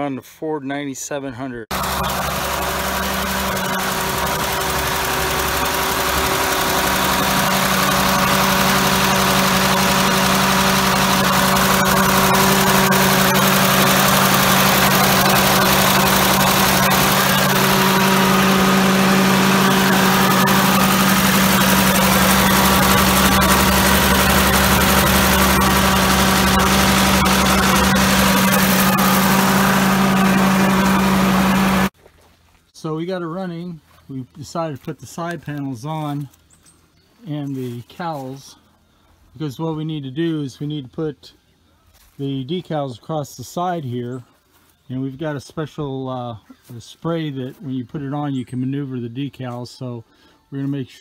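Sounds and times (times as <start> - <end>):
tractor diesel engine running: 1.7 - 32.0.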